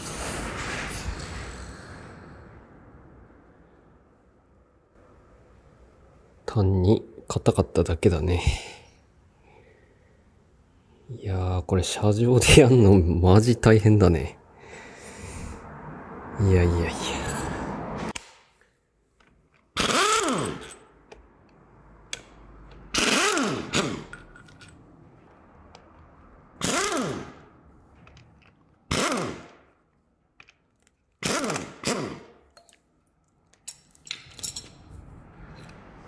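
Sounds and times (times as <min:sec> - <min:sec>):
tools clicking and knocking: 0:19.2 - 0:27.2, 0:27.9 - 0:29.5, 0:30.4 - 0:32.8, 0:33.4 - 0:35.9
pneumatic impact wrench bursts: 0:19.8 - 0:20.9, 0:22.9 - 0:24.2, 0:26.6 - 0:27.4, 0:28.9 - 0:29.6, 0:31.2 - 0:32.3.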